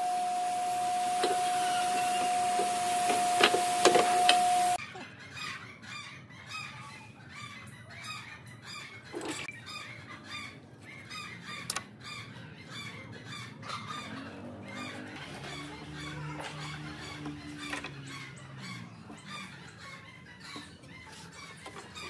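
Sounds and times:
power drill whining: 0:00.0 - 0:04.8.

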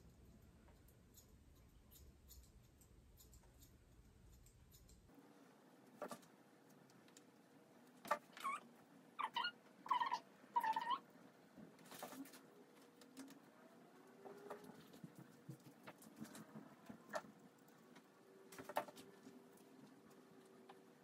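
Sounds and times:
dog whining: 0:09.2 - 0:11.0.

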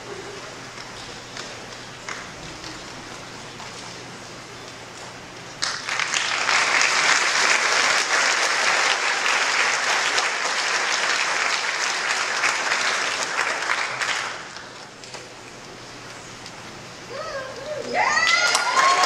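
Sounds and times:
audience applauding: 0:05.6 - 0:14.9, 0:18.0 - 0:19.0.

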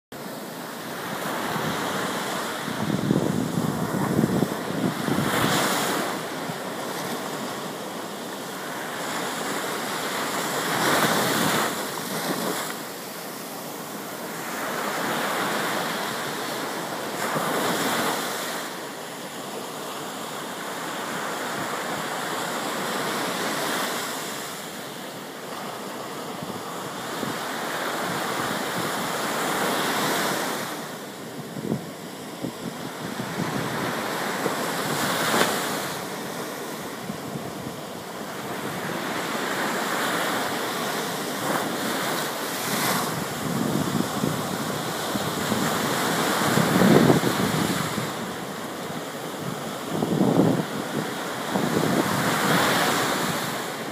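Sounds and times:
ocean surf breaking on beach: 0:00.2 - 0:53.9.

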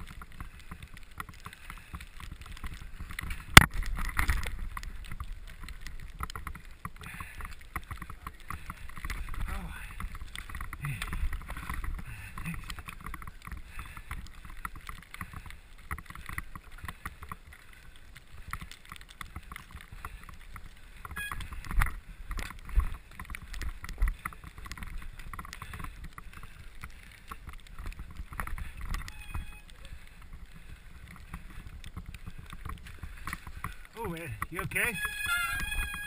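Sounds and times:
tyres rumbling on snow: 0:00.0 - 0:36.0
wind: 0:00.0 - 0:36.0
camera rattling and knocking: 0:02.3 - 0:17.4, 0:31.1 - 0:33.7.

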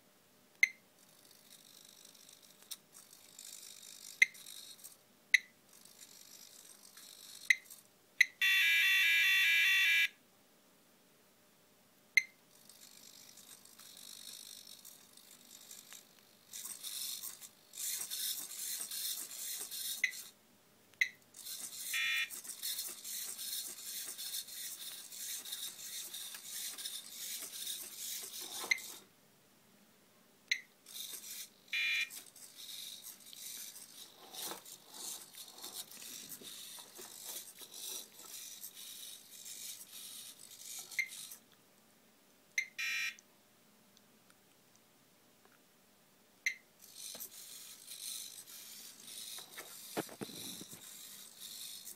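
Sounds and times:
servo motors buzzing: 0:12.5 - 0:20.4, 0:21.4 - 0:29.1, 0:30.9 - 0:41.4, 0:46.8 - 0:51.9
short high beeps: 0:22.0 - 0:22.3, 0:31.8 - 0:32.1, 0:42.6 - 0:43.2.

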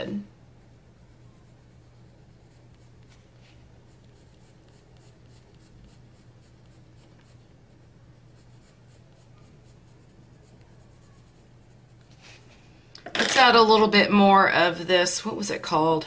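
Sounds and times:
pencil scratching on paper: 0:00.6 - 0:12.5.

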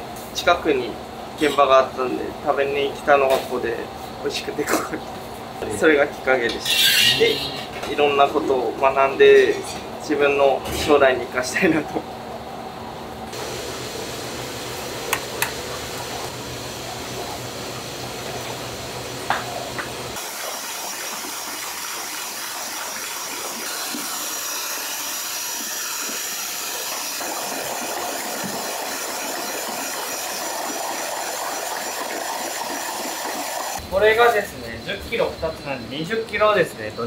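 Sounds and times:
electric hand mixer running: 0:13.3 - 0:33.8.

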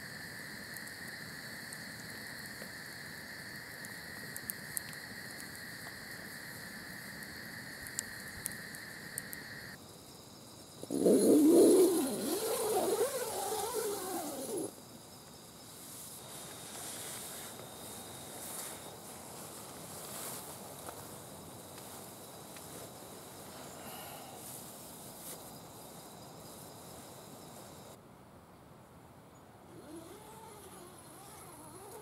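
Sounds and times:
high insect drone: 0:00.0 - 0:28.0, 0:29.7 - 0:32.0
faint campfire crackles: 0:00.0 - 0:32.0
tent door zipper pulled: 0:10.9 - 0:14.7, 0:29.7 - 0:32.0.

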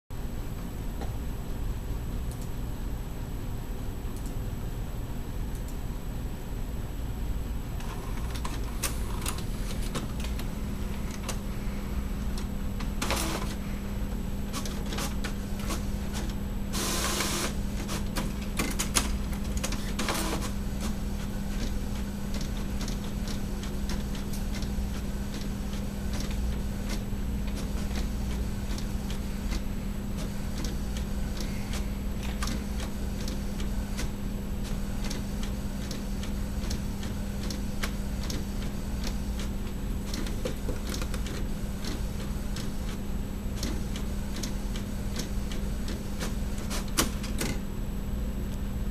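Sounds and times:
printer humming: 0:07.7 - 0:48.9
printer clicks: 0:12.3 - 0:13.6, 0:14.5 - 0:39.5, 0:40.1 - 0:47.6.

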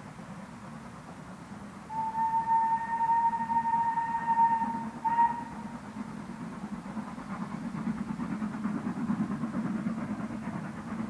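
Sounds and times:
low rumble of passing train: 0:00.0 - 0:11.0
steam locomotive whistle: 0:01.9 - 0:05.8.

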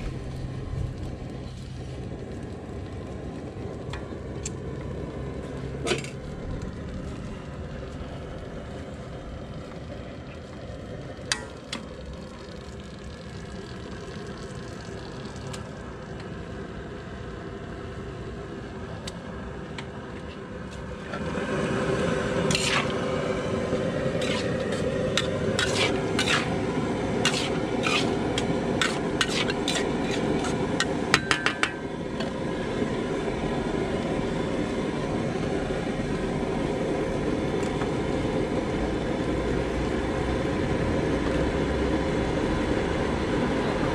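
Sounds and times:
vegetables sizzling in a wok: 0:21.2 - 0:32.6
metal spatula scraping a wok: 0:22.4 - 0:23.1, 0:24.0 - 0:31.4.

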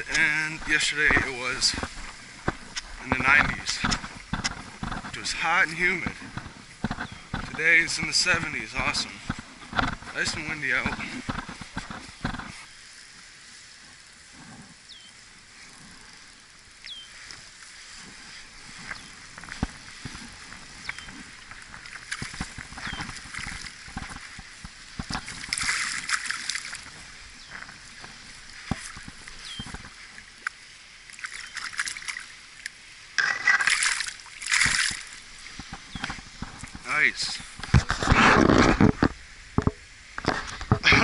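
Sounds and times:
fish splashing at water surface: 0:33.2 - 0:35.7.

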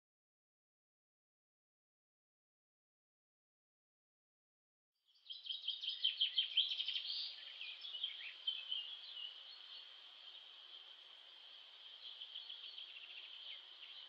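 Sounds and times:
birds chirping and trilling: 0:05.2 - 0:14.0.

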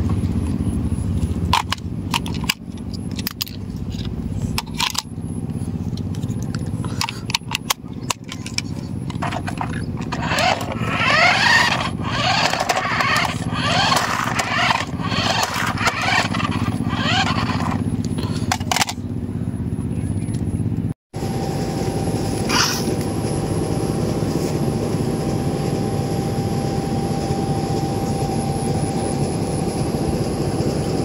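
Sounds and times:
steady low hum: 0:00.0 - 0:31.0
toy car motor whirring: 0:06.2 - 0:19.0.

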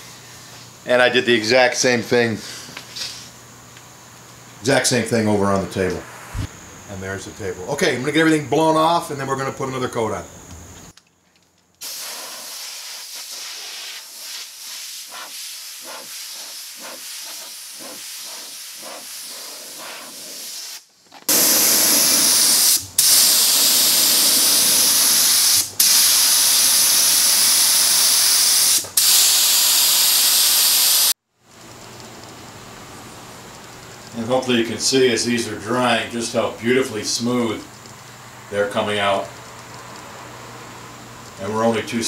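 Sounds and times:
soft air hiss with pulses: 0:00.0 - 0:10.4, 0:11.8 - 0:42.0
spray gun hissing: 0:05.9 - 0:06.6, 0:11.8 - 0:31.2.

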